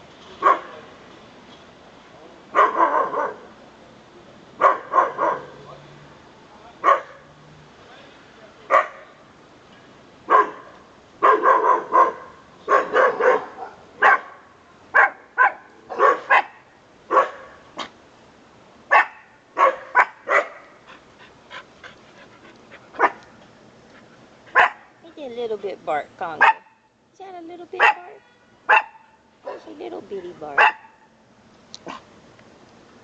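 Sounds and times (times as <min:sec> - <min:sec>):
dog barking: 0:00.4 - 0:00.8, 0:02.5 - 0:03.5, 0:04.6 - 0:05.6, 0:06.8 - 0:07.2, 0:08.7 - 0:09.1, 0:10.3 - 0:14.4, 0:15.0 - 0:17.6, 0:18.9 - 0:20.8, 0:23.0 - 0:23.2, 0:24.5 - 0:24.9, 0:26.4 - 0:26.8, 0:27.8 - 0:29.7, 0:30.6 - 0:31.0.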